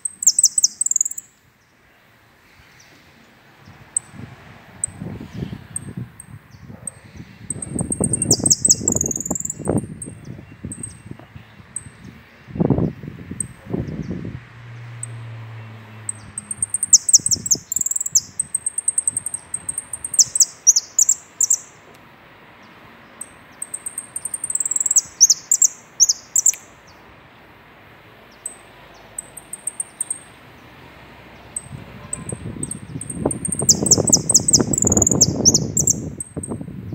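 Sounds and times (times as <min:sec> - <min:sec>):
finch singing trills and chirps: 0:00.0 - 0:01.3, 0:04.8 - 0:12.2, 0:15.9 - 0:21.8, 0:23.2 - 0:27.0, 0:29.2 - 0:30.3, 0:31.5 - 0:36.9.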